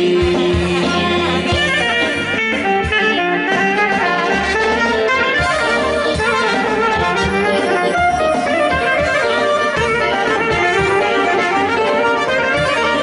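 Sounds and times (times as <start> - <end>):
brass band playing: 0.0 - 13.0
saxophone melody: 0.0 - 13.0
trumpet melody: 0.0 - 13.0.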